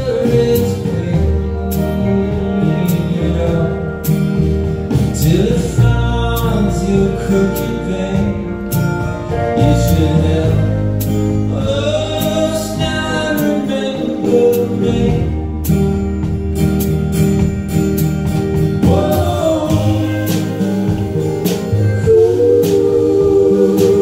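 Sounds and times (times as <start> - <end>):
strummed guitars: 0.0 - 24.0
voices singing in harmony: 18.8 - 24.0.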